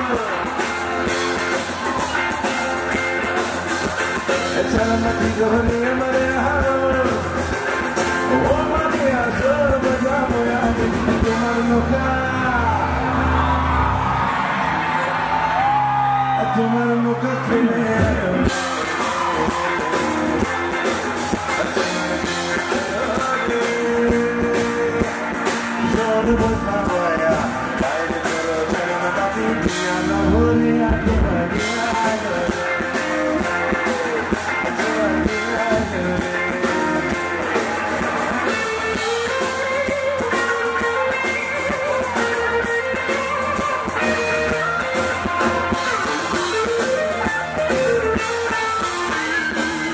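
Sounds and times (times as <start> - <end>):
live band with electric guitar: 0.0 - 49.9
man singing: 4.2 - 13.2, 16.2 - 46.9.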